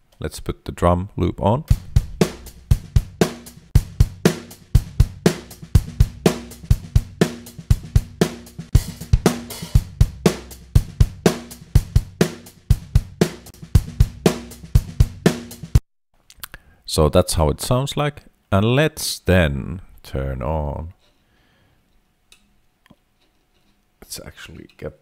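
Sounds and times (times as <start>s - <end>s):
drum kit beat: 1.7s - 15.8s.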